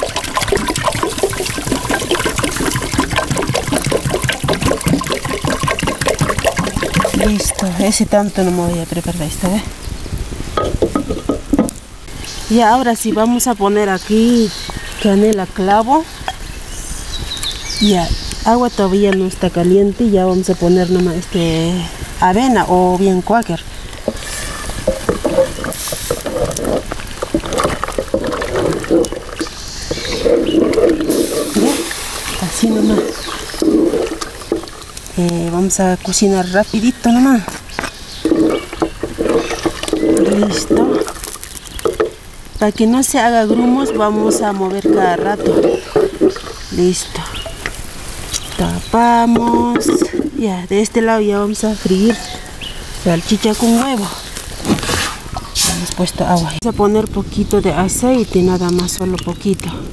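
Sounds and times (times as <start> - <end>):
water pouring gurgle: 0.0 - 9.6, 10.5 - 14.3, 20.9 - 50.4
wood knocking and scraping clay: 10.6 - 11.8, 24.0 - 31.8, 37.4 - 42.2, 43.4 - 46.7.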